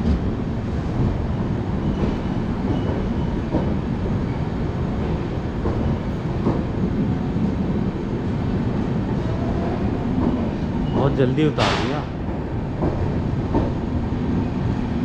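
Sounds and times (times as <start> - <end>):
train wheels on rails: 0.0 - 15.0.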